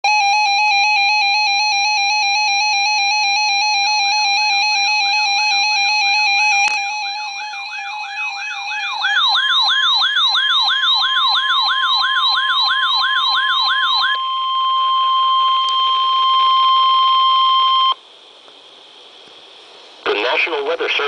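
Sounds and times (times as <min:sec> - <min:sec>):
warbling siren-like sweep: 0:05.6 - 0:18.0
steady warning alert tone: 0:05.8 - 0:18.0.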